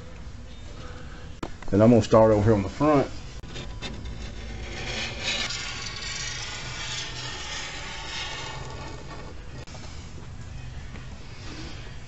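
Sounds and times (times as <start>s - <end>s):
squeegee scraping on glass: 3.4s - 9.7s.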